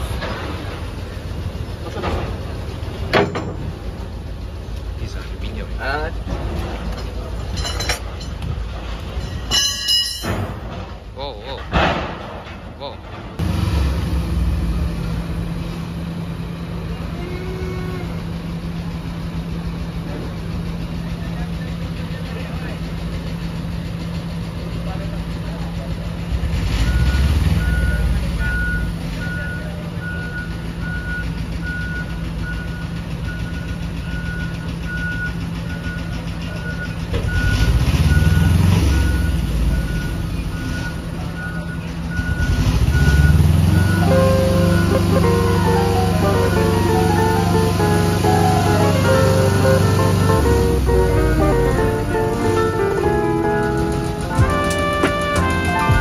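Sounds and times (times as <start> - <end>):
truck diesel engine running: 0.0 - 11.6, 12.3 - 56.0
warning beeper: 39.1 - 50.2.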